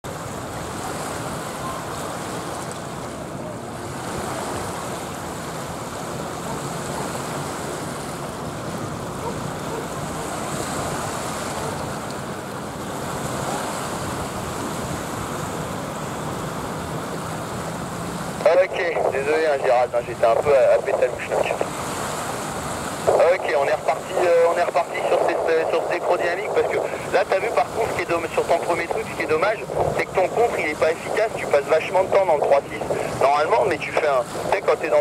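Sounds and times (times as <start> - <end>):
water rushing: 0.0 - 35.0
wind rushing: 28.9 - 31.6.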